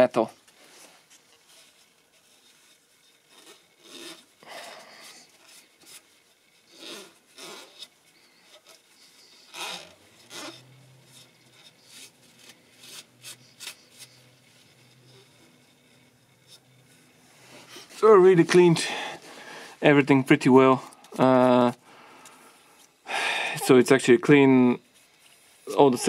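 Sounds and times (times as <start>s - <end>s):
cloth rag scraping metal: 0.5s - 21.8s.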